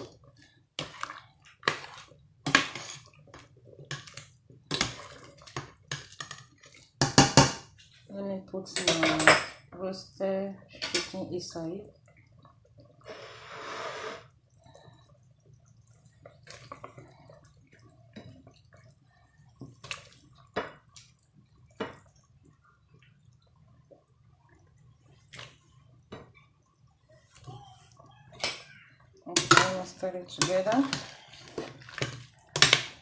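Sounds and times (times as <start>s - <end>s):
food splashing into pot: 0.0s - 7.8s, 28.3s - 33.0s.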